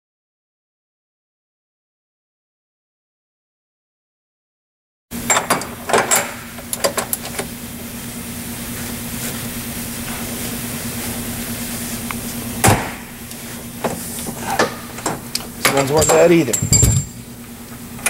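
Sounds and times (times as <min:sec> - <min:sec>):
low steady hum: 0:05.2 - 0:18.0
wrench clinking on metal: 0:15.6 - 0:17.2.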